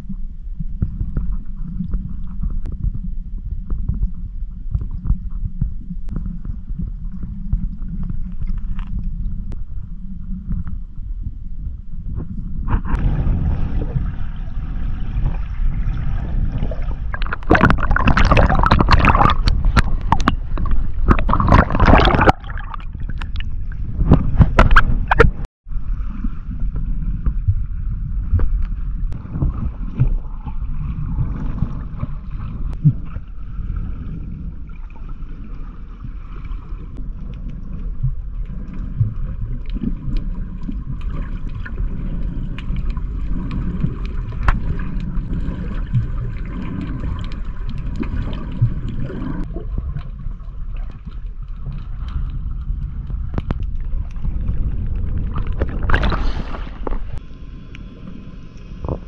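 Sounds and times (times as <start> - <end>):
muffled underwater water rushing: 0.0 - 59.0
water splashing: 12.7 - 25.5, 29.2 - 57.3.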